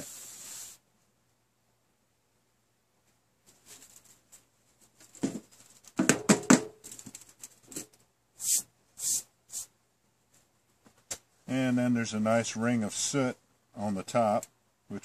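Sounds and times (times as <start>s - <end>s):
metal tin knocking and clanking: 6.0s - 7.0s.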